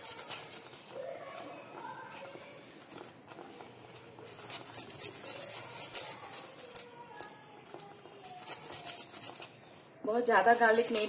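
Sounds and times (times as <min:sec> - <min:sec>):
garlic scraping on metal grater: 0:04.3 - 0:06.8, 0:08.2 - 0:09.5.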